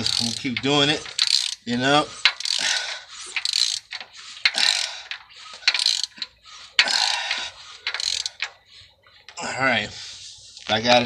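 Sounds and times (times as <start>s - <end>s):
ratchet wrench clicking: 0.0s - 8.8s.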